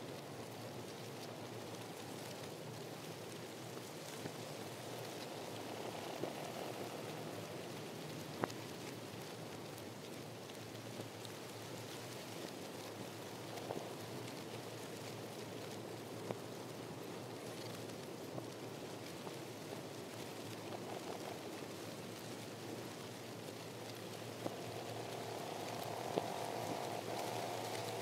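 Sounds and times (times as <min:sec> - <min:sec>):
even rushing hiss: 0:04.0 - 0:09.2, 0:20.1 - 0:28.0.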